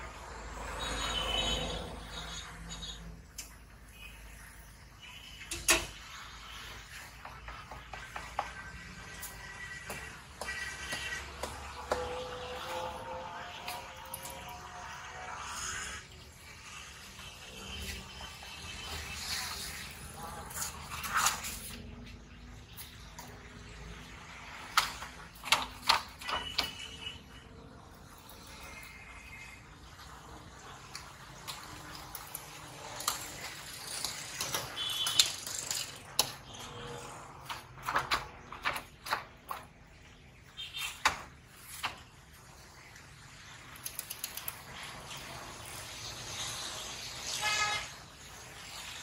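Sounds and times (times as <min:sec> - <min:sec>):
fries sizzling in hot oil: 0:12.5 - 0:21.6, 0:28.3 - 0:37.4, 0:41.5 - 0:49.0.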